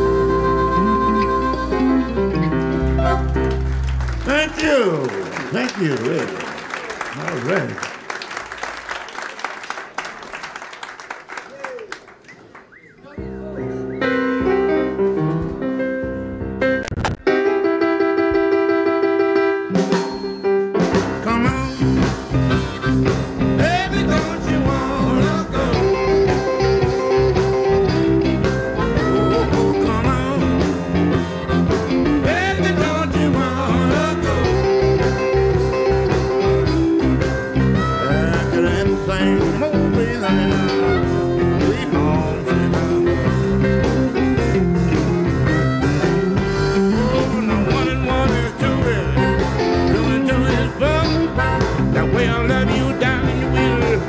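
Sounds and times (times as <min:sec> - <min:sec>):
harmonica: 0:00.0 - 0:03.3, 0:21.4 - 0:54.0
live blues band playing: 0:00.0 - 0:08.8, 0:13.2 - 0:54.0
electric guitar lead lines: 0:13.7 - 0:54.0.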